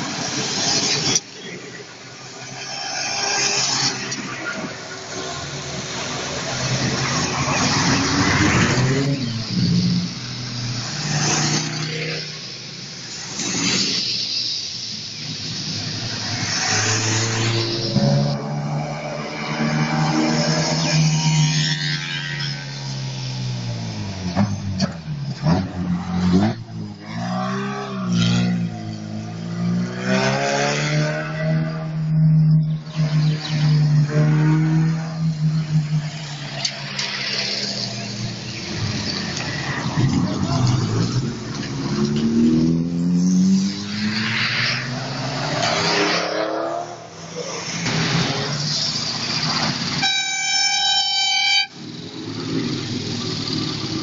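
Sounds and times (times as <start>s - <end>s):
tyres hissing on wet asphalt: 0.0s - 30.3s, 32.9s - 54.0s
car engines driving past: 0.0s - 50.0s.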